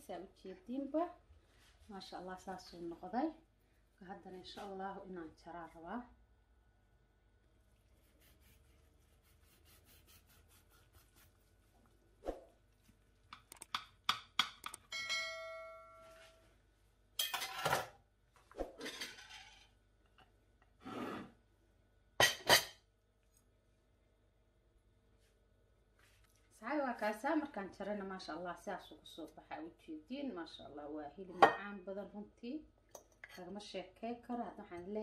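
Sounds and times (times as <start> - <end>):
knife sawing through crusty bread: 8.0 - 11.4
knife scraping ceramic platter: 20.8 - 21.3.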